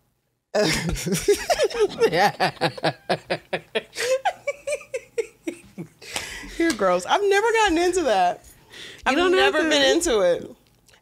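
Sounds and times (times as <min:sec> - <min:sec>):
woman laughing hard: 0:00.6 - 0:06.0.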